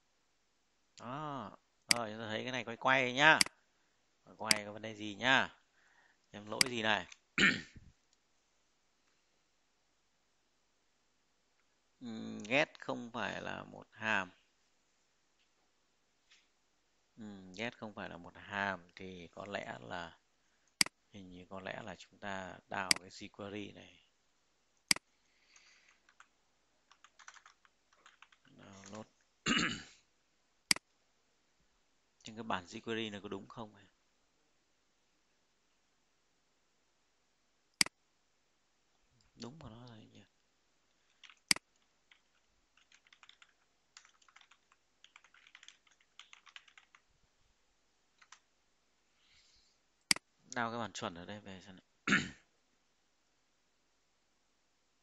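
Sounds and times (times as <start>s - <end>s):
faint typing on a keyboard: 0.9s - 2.2s, 4.3s - 5.0s, 6.0s - 8.3s, 18.9s - 19.9s, 20.6s - 21.0s, 22.7s - 23.3s, 24.7s - 29.4s, 38.9s - 47.2s, 48.0s - 48.6s, 50.0s - 50.7s
typing on computer keyboard: 25.9s - 26.3s, 26.9s - 29.0s, 41.1s - 47.1s, 48.2s - 48.4s.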